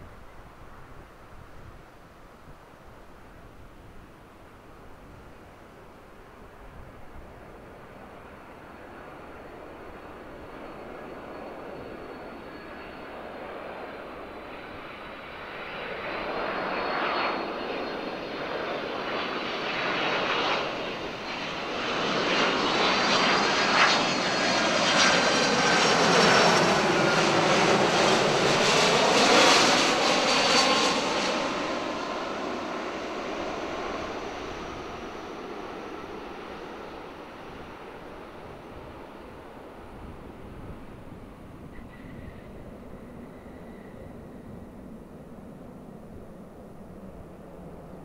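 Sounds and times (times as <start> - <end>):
jet airliner passing by: 2.7 - 48.0.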